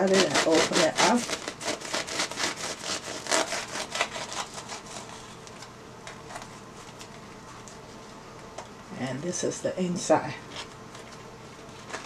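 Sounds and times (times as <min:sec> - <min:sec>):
bread knife sawing through crust: 0:00.0 - 0:05.3.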